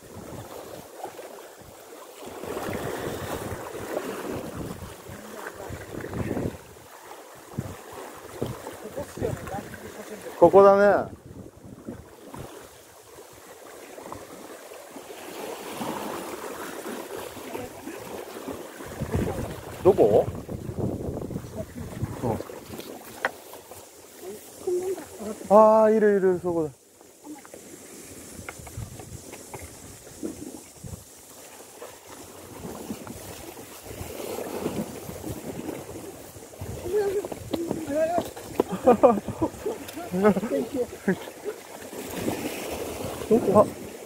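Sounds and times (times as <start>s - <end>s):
water lapping against rocks: 0.0s - 44.0s
wind buffeting microphone: 2.4s - 12.6s, 17.4s - 23.2s, 27.8s - 31.2s, 32.3s - 41.2s
footsteps and handling on rock: 36.9s - 40.6s.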